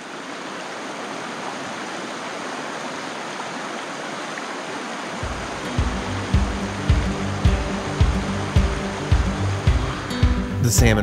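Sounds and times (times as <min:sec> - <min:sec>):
river water rushing: 0:00.0 - 0:10.7
music with deep bass beats: 0:05.2 - 0:11.0.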